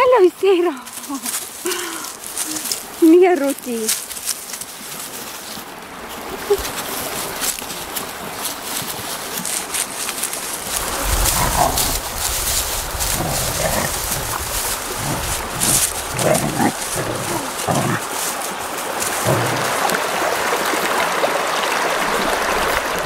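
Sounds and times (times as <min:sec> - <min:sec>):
rustling and clicks: 0:06.6 - 0:19.6
low rumble: 0:10.6 - 0:17.5
young animal calling: 0:10.6 - 0:18.2.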